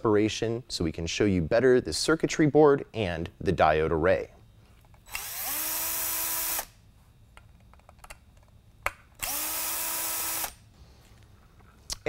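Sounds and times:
cordless drill spinning: 0:05.0 - 0:06.7, 0:09.2 - 0:10.6.

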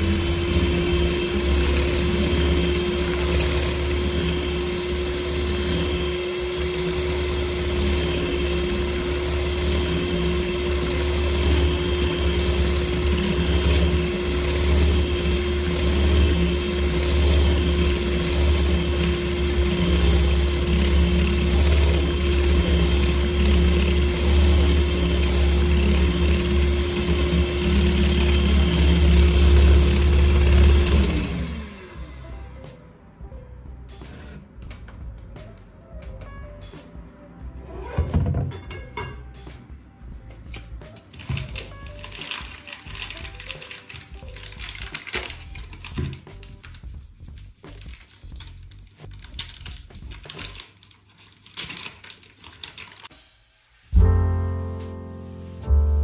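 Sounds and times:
electric hand mixer whipping: 0:00.0 - 0:32.1.

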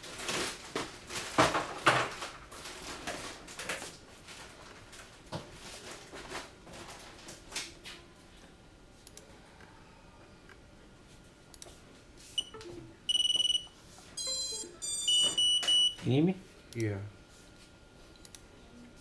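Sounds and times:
objects knocking and clattering: 0:00.3 - 0:02.4.

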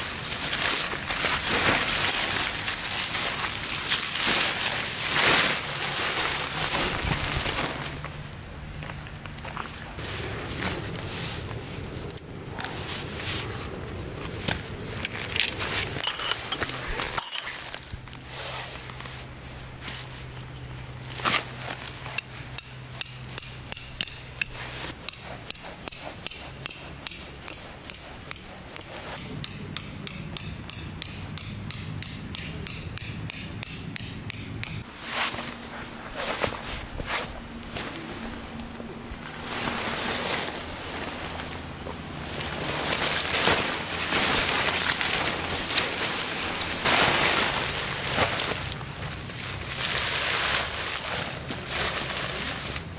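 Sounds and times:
ringing metal clank: 0:16.0 - 0:17.6
hammer striking tent stakes: 0:22.2 - 0:34.9.

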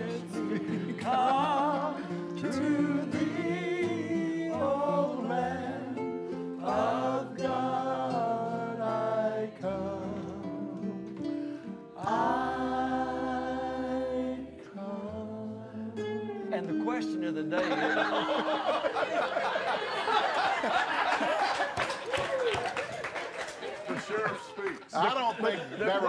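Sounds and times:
man singing with vibrato: 0:00.0 - 0:11.0, 0:12.0 - 0:16.5
acoustic guitar: 0:00.0 - 0:21.6.

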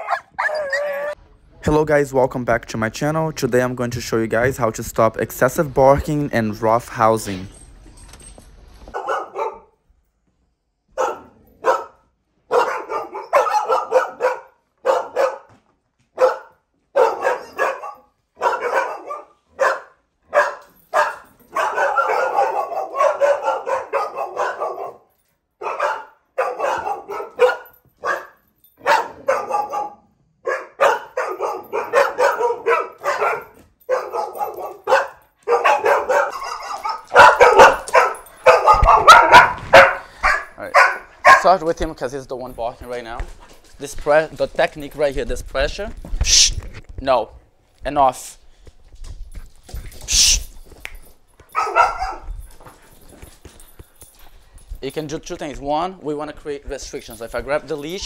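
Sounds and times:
dog barking: 0:00.0 - 0:01.2, 0:08.9 - 0:09.8, 0:10.9 - 0:15.5, 0:16.1 - 0:41.6, 0:51.5 - 0:52.3.

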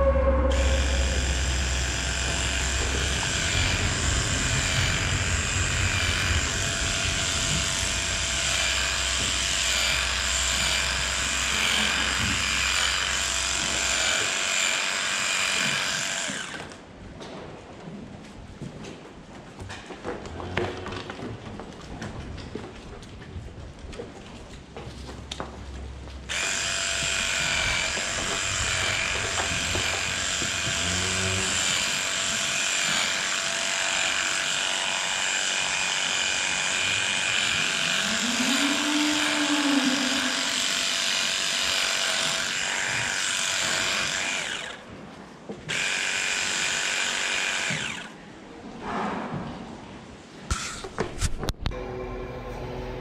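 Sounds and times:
electric clippers whining: 0:00.3 - 0:16.8, 0:26.3 - 0:44.9, 0:45.6 - 0:48.2.

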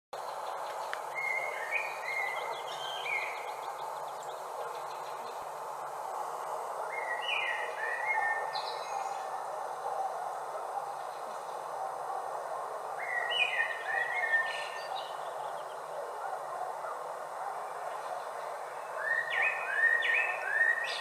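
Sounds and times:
steady background noise: 0:00.2 - 0:21.0
songbirds whistling: 0:00.3 - 0:05.4, 0:06.9 - 0:09.5, 0:13.0 - 0:16.0, 0:18.0 - 0:21.0.

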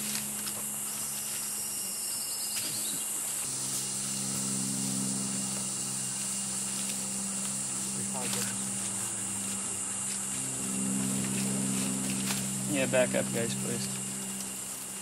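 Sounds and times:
high-pitched insect drone: 0:00.0 - 0:15.0
low steady hum: 0:00.0 - 0:15.0
descending trilled call: 0:03.4 - 0:15.0.

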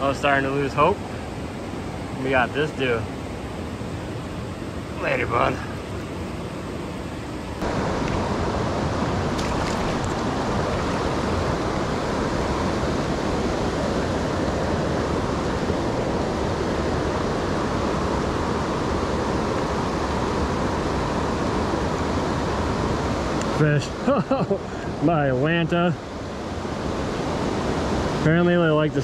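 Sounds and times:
stream water flowing: 0:03.2 - 0:28.8.

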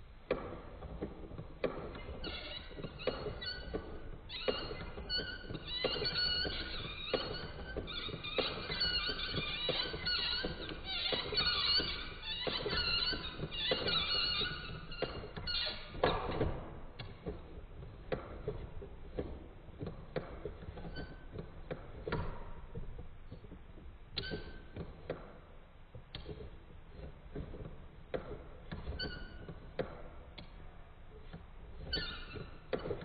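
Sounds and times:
short squeaks: 0:01.6 - 0:17.1, 0:24.2 - 0:24.7, 0:28.6 - 0:29.7, 0:31.2 - 0:33.0.

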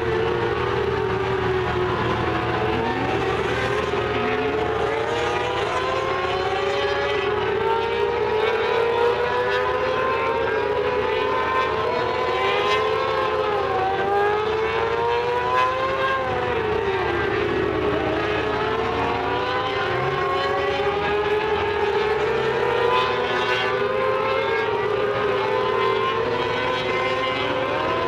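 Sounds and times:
racing car engines: 0:00.0 - 0:28.0.

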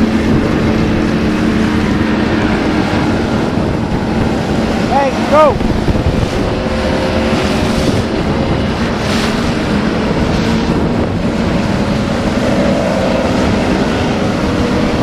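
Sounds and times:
outboard motors racing past: 0:00.0 - 0:15.0
wind buffeting microphone: 0:00.0 - 0:15.0.

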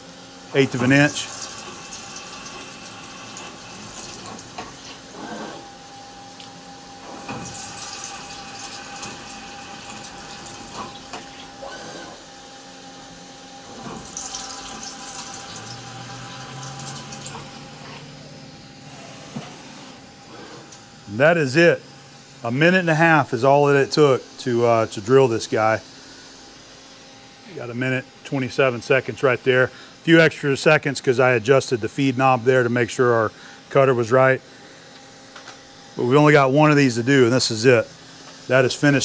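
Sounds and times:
milling machine hum: 0:00.0 - 0:39.0
coolant splashing: 0:00.6 - 0:05.2, 0:07.1 - 0:11.6, 0:13.7 - 0:17.8.

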